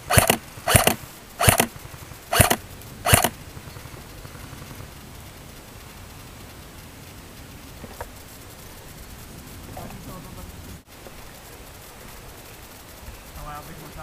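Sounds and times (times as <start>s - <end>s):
airsoft rifle firing: 0.0s - 3.4s.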